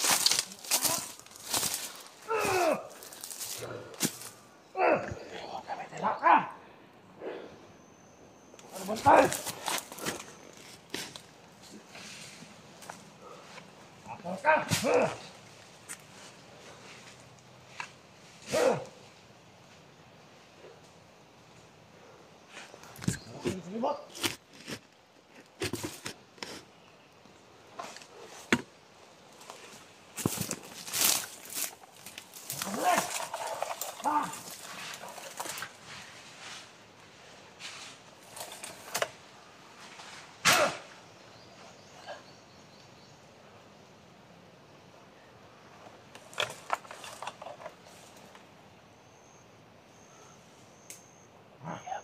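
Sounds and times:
dry leaves rustling and crackling: 0:00.0 - 0:04.4, 0:08.8 - 0:11.8, 0:29.3 - 0:38.9
rustling plants: 0:00.0 - 0:04.6, 0:08.6 - 0:19.9, 0:22.4 - 0:41.8, 0:45.8 - 0:48.5.

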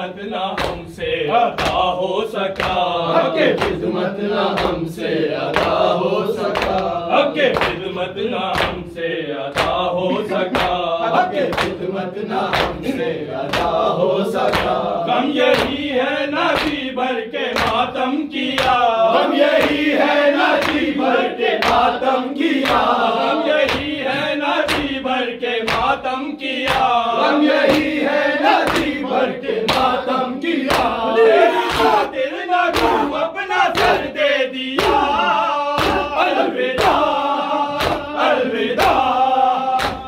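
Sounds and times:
men chanting in unison: 0:00.0 - 0:40.0
hands slapping chests: 0:00.5 - 0:00.9, 0:01.5 - 0:01.9, 0:02.5 - 0:03.9, 0:04.5 - 0:04.9, 0:05.5 - 0:08.9, 0:09.5 - 0:11.9, 0:12.5 - 0:15.9, 0:16.5 - 0:16.9, 0:17.5 - 0:17.9, 0:18.5 - 0:18.9, 0:19.5 - 0:23.0, 0:23.6 - 0:24.0, 0:24.6 - 0:25.0, 0:25.6 - 0:26.0, 0:26.6 - 0:27.0, 0:27.6 - 0:30.0, 0:30.6 - 0:31.0, 0:31.6 - 0:34.2, 0:34.8 - 0:40.0.

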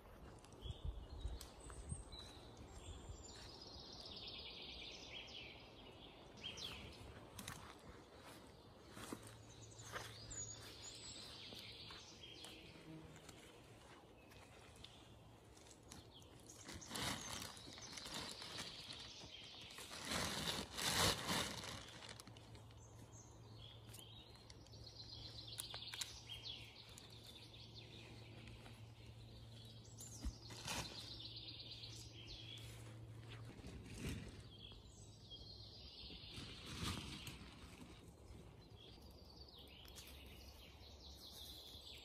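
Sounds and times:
small birds chirping: 0:00.0 - 0:42.0
raking dry pine needles: 0:15.5 - 0:22.8, 0:29.9 - 0:34.7, 0:36.3 - 0:38.2.

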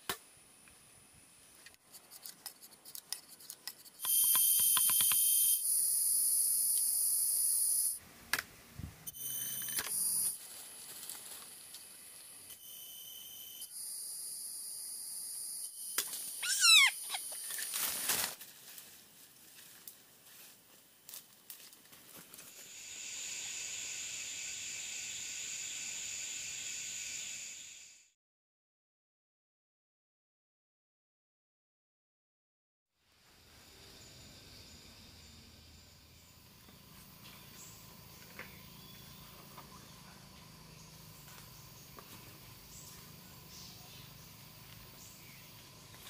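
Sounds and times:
forest insects buzzing: 0:04.0 - 0:08.0, 0:09.1 - 0:28.1, 0:33.1 - 0:46.0
bird's falling call: 0:16.4 - 0:17.3.

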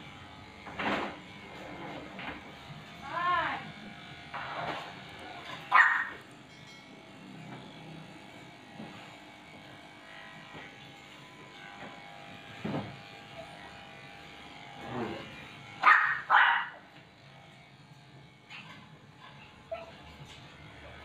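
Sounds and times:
electric clippers buzzing: 0:00.0 - 0:21.0
dog barking: 0:05.7 - 0:06.2, 0:15.8 - 0:16.8.

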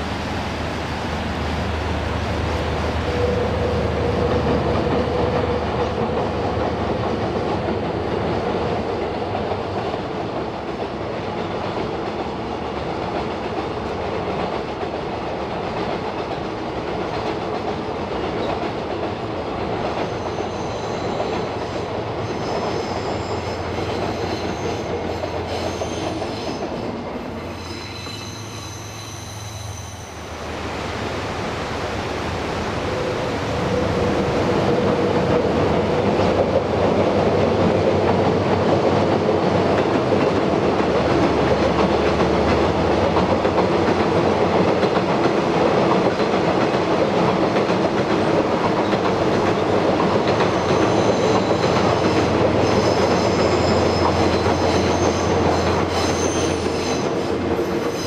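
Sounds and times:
freight train rumbling over bridge: 0:00.0 - 0:58.0
high wheel squeal: 0:20.0 - 0:21.6, 0:22.2 - 0:30.4, 0:50.5 - 0:58.0.

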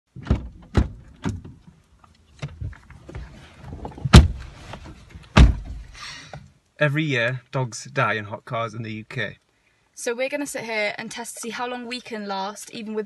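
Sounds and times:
car doors and seats thumping: 0:00.1 - 0:01.7, 0:02.4 - 0:06.0
rustling: 0:01.0 - 0:06.1.

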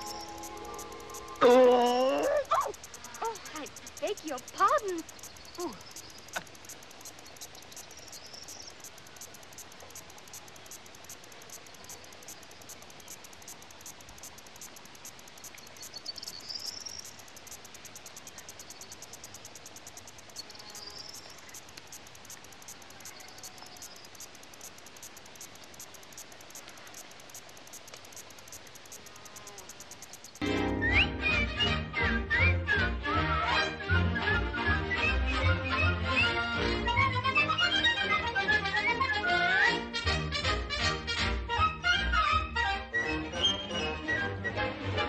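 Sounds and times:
low hiss: 0:00.0 - 0:30.8
crickets chirping: 0:00.0 - 0:31.0.

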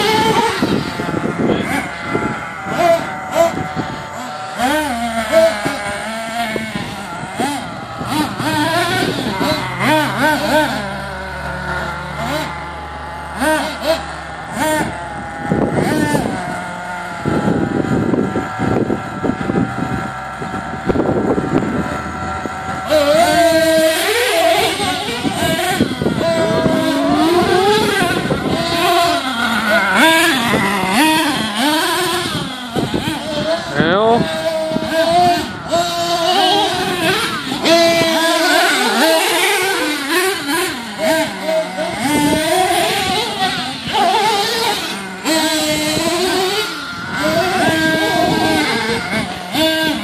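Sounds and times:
low engine drone: 0:00.0 - 0:50.0
small engines revving: 0:00.0 - 0:50.0.

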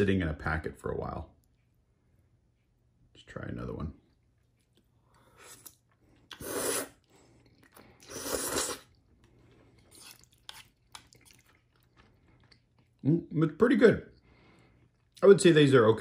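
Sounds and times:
chewing and mouth noises: 0:04.0 - 0:13.1, 0:14.8 - 0:15.2
person slurping noodles: 0:05.4 - 0:09.0.

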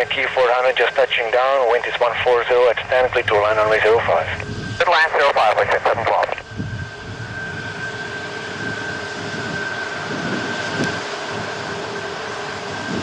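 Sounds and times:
jet engines running: 0:00.0 - 0:13.0.

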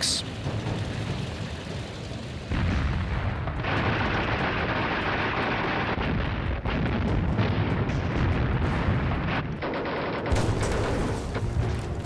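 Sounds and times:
artillery fire and blasts: 0:00.4 - 0:12.0
explosion: 0:02.5 - 0:12.0.

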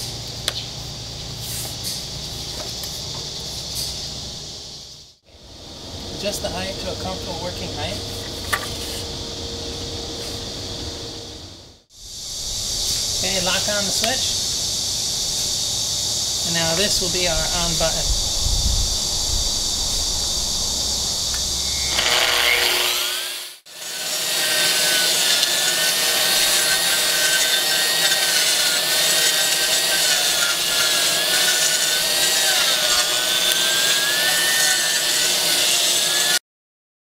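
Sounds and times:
gritty hiss of abrasion: 0:01.3 - 0:04.1, 0:11.9 - 0:34.6
concrete grinder whining: 0:21.3 - 0:36.4.

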